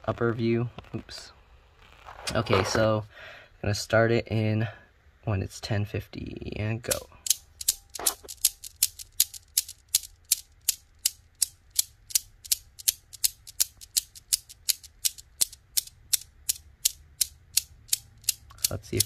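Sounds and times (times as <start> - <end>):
newton's cradle balls clacking: 6.9 - 19.0.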